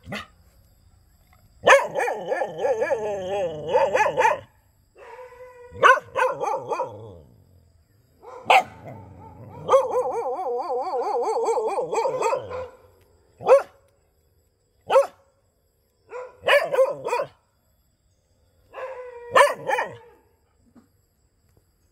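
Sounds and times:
dog barking: 0.0 - 0.4, 1.6 - 7.2, 8.2 - 13.8, 14.9 - 15.2, 16.1 - 17.4, 18.7 - 20.3.

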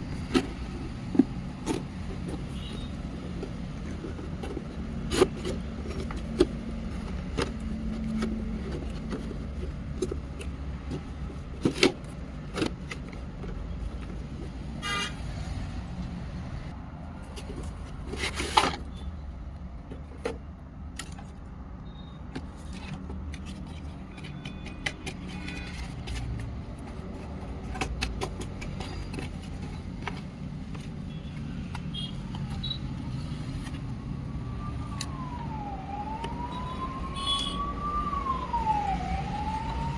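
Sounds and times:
cardboard box being handled: 0.0 - 14.7.

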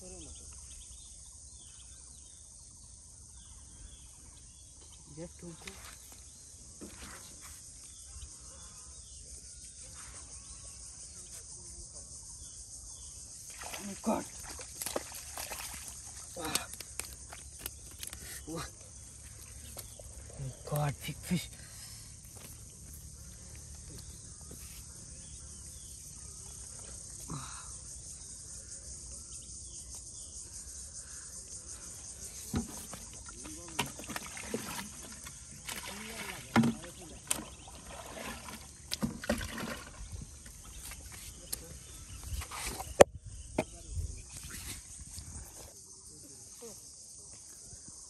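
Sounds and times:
footsteps in mud and water: 13.5 - 21.6, 22.2 - 24.8, 32.6 - 42.9.

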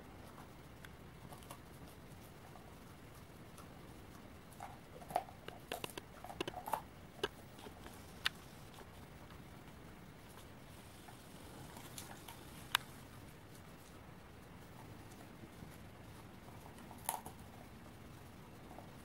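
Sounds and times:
dog crunching walnut shells: 4.5 - 8.0.

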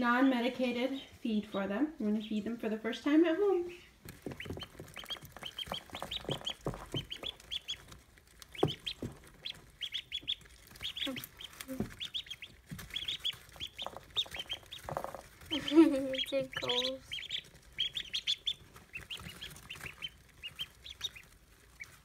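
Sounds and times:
ducklings peeping: 0.1 - 22.0.

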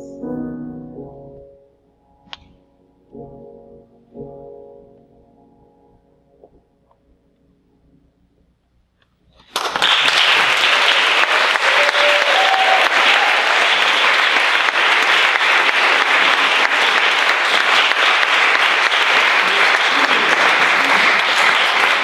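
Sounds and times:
audience applause: 9.5 - 22.0.

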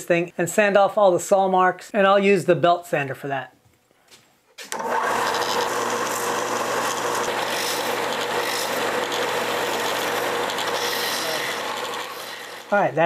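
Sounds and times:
belt sander running: 4.7 - 13.0
plastic rasping on sanding belt: 5.2 - 12.8.

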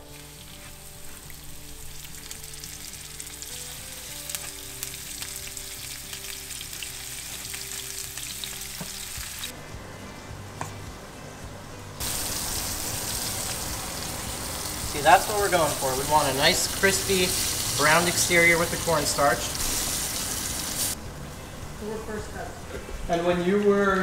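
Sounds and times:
fish sizzling in oil: 0.0 - 9.5, 12.0 - 21.0
soft background music: 0.0 - 24.0.

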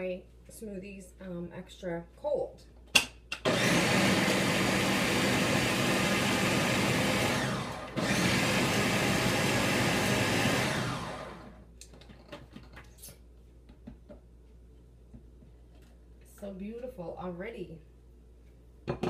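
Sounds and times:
blender running: 3.4 - 11.6.

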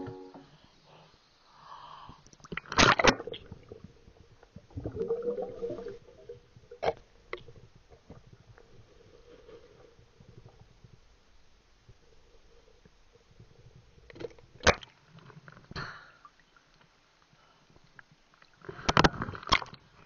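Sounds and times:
water gurgling and sloshing: 2.4 - 16.7.

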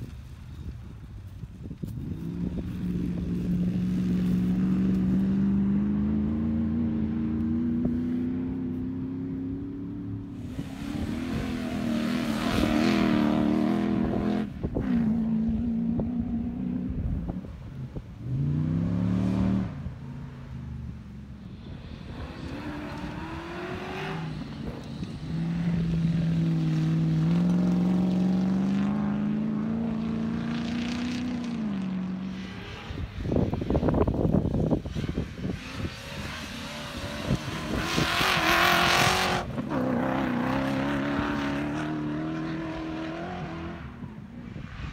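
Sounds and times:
off-road vehicle engines revving: 0.0 - 44.9.

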